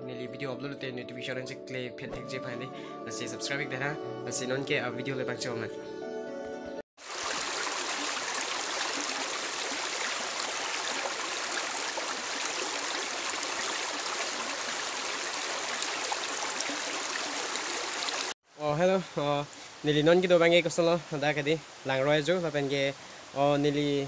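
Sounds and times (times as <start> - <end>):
stream rushing over stones: 7.0 - 18.4.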